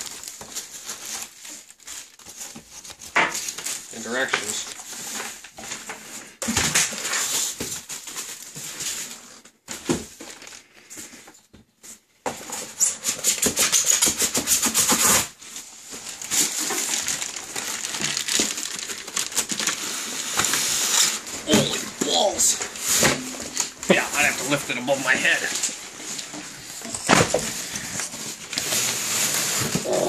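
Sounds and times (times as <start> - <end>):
plastic bag crinkling: 0.0 - 5.5, 15.4 - 30.0
foam and cardboard scraping: 12.3 - 18.5, 19.3 - 30.0.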